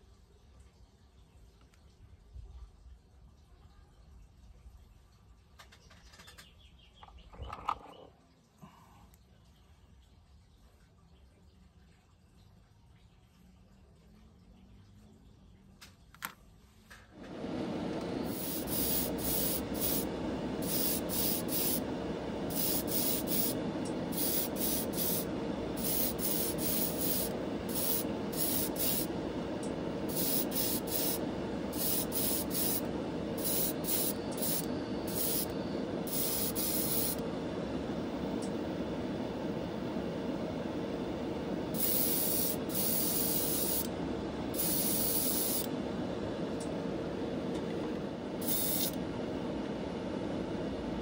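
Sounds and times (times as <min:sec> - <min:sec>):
spray booth fan running: 0:17.1 - 0:51.0
airbrush spraying hiss: 0:17.4 - 0:47.6, 0:48.2 - 0:49.6.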